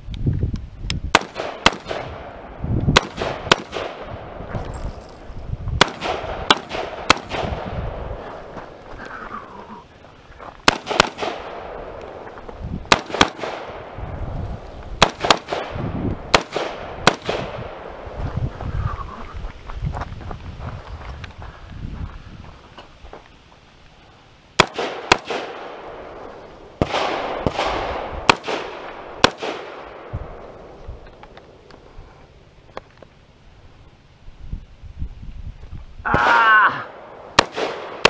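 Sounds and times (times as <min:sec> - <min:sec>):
rifle gunshots with echo: 0:01.1 - 0:04.4, 0:05.8 - 0:08.2, 0:10.6 - 0:12.2, 0:12.9 - 0:14.2, 0:15.0 - 0:18.1, 0:24.6 - 0:30.8, 0:36.9 - 0:38.0.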